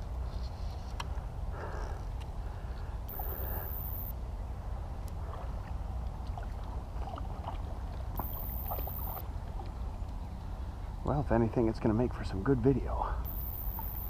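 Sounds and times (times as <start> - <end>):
high-pitched whine: 3.1 - 4.2, 13.2 - 14.0
water sloshing and splashing: 5.0 - 10.4.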